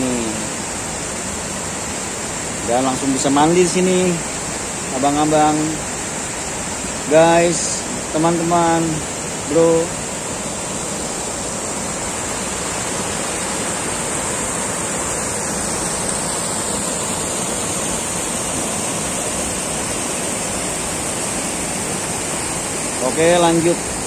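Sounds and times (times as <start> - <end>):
river rushing over boulders: 0.0 - 24.0.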